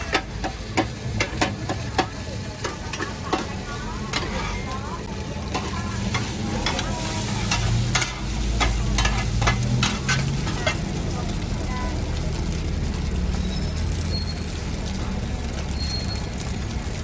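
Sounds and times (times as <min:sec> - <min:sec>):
metal spatulas scraping wok: 0:00.0 - 0:04.8, 0:05.4 - 0:11.0
batter sizzling in oil: 0:00.0 - 0:17.0.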